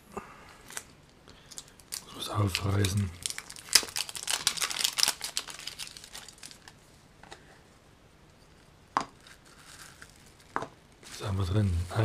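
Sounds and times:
wrapper crinkling: 1.5s - 6.8s, 9.1s - 12.0s.

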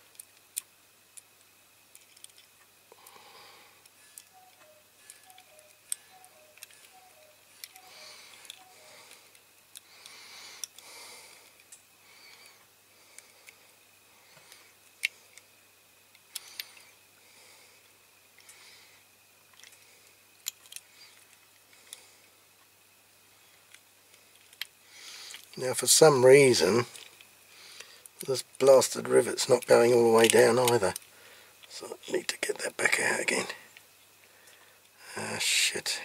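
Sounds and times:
metal toy parts clicking: 1.9s - 2.6s, 4.1s - 8.8s, 10.6s - 10.8s, 19.5s - 19.8s, 20.4s - 21.4s, 23.7s - 24.7s, 25.3s - 25.6s, 29.6s - 31.7s.

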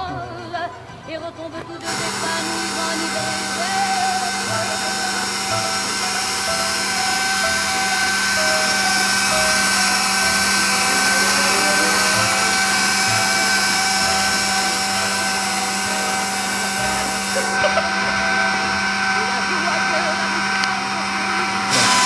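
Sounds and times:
stand mixer motor whine: 1.8s - 22.0s.

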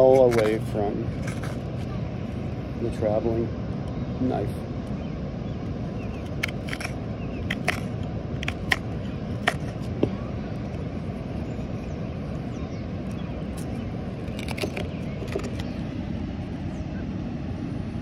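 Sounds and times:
knife carving wood clicks: 6.2s - 10.1s, 13.5s - 15.7s.

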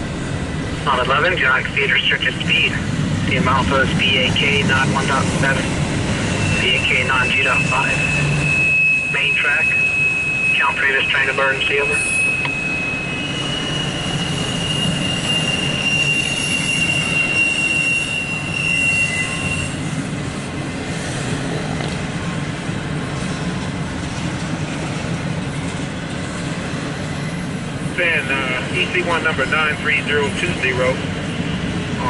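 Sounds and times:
train wheels rumbling on rail: 0.0s - 32.0s
high wheel squeal: 4.4s - 20.0s.

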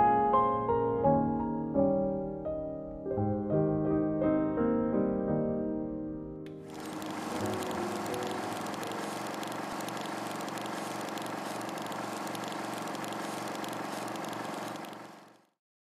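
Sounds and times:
rattling whir: 6.6s - 15.5s.

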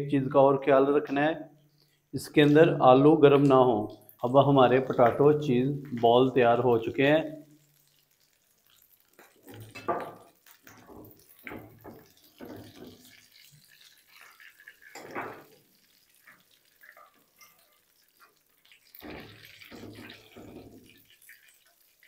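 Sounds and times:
food deep-frying in oil: 3.5s - 22.0s
oil splashes and skimmer clatters: 8.6s - 21.8s.

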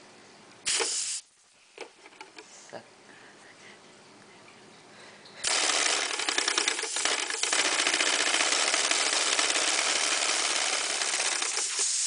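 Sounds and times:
air engine hissing and clattering: 5.4s - 12.0s.

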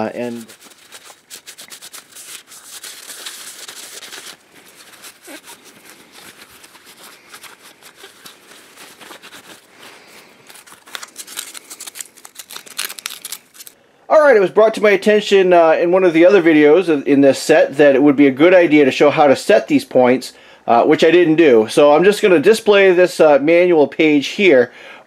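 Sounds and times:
paper towel rubbing and crinkling: 0.0s - 13.8s.

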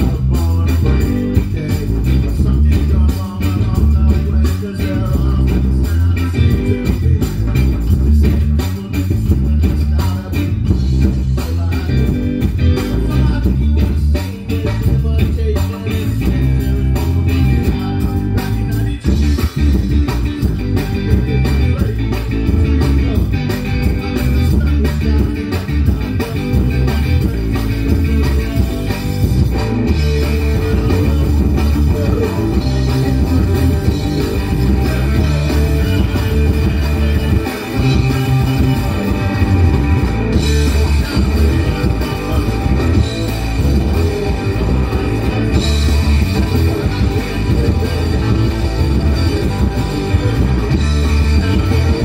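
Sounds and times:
person singing: 0.0s - 29.3s, 29.9s - 52.0s
bass guitar: 0.0s - 52.0s
drum kit: 0.0s - 52.0s
electric guitar: 0.0s - 52.0s.

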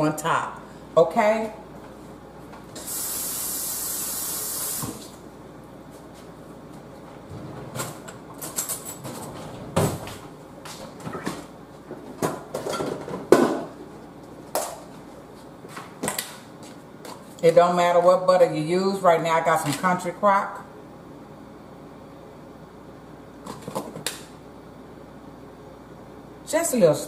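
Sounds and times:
kitchen knocks and clatter: 11.0s - 13.8s.

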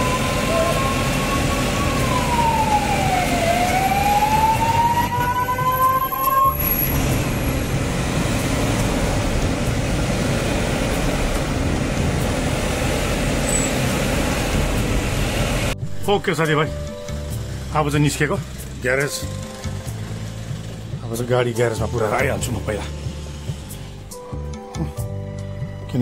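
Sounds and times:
police siren wailing: 0.0s - 8.0s
engine noise: 0.0s - 15.8s, 16.8s - 24.4s.

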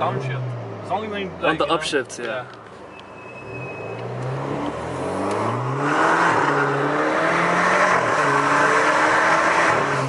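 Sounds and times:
intake and turbo rush: 3.0s - 10.0s
car engine accelerating: 3.4s - 10.0s.

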